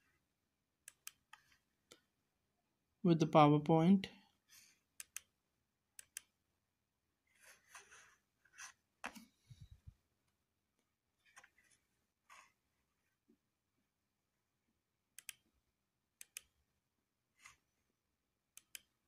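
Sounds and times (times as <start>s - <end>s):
computer mouse clicking: 0.8s - 2.0s, 5.0s - 5.3s, 6.0s - 6.4s, 15.2s - 15.5s, 16.2s - 16.6s, 18.6s - 19.0s.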